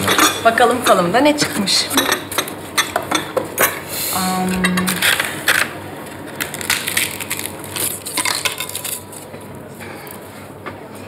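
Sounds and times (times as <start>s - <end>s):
fortune cookies cracking: 4.8s - 10.2s.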